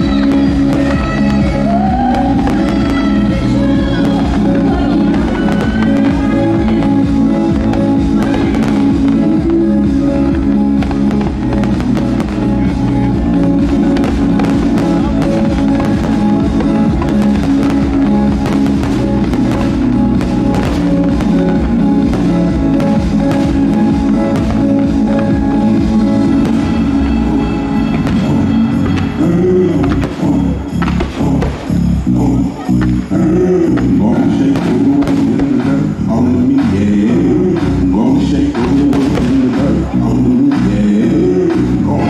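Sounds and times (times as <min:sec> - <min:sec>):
music with drums: 0:00.0 - 0:32.0, 0:33.8 - 0:42.0
fireworks banging and crackling: 0:00.0 - 0:41.7.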